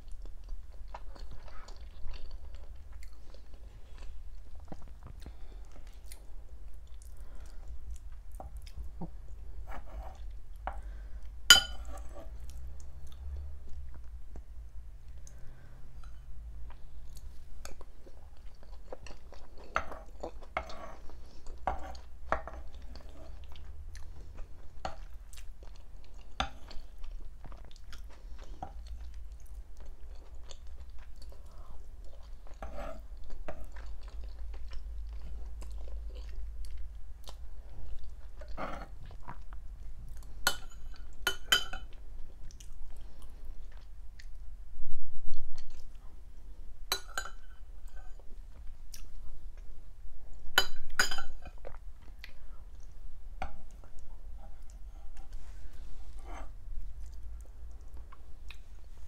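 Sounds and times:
close chewing with mouth smacks: 0:00.0 - 0:09.2, 0:16.7 - 0:40.4, 0:41.9 - 0:44.4, 0:57.0 - 0:58.8
metal spoon clinking: 0:11.5 - 0:11.9, 0:50.6 - 0:51.4.

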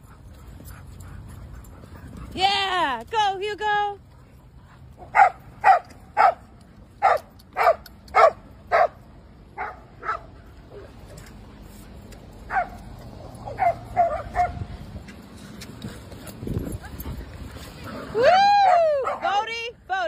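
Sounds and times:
dog barking: 0:05.1 - 0:06.4, 0:07.0 - 0:09.0, 0:09.6 - 0:10.3, 0:12.5 - 0:12.8, 0:13.5 - 0:14.6.

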